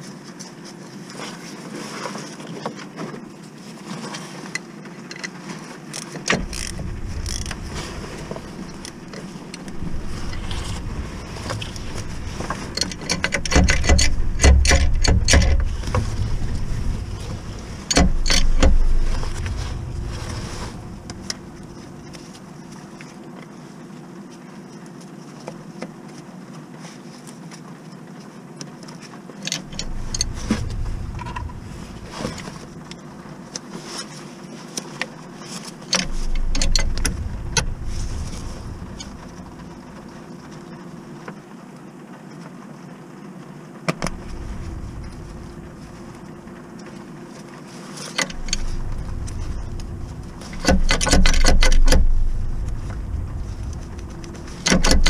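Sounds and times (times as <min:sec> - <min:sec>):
low rumble: 0:06.2 - 0:23.2, 0:29.6 - 0:33.6, 0:36.0 - 0:41.1, 0:44.0 - 0:47.4, 0:48.2 - 0:55.0
metallic tool clicks and knocks: 0:12.8 - 0:15.7, 0:50.5 - 0:52.2.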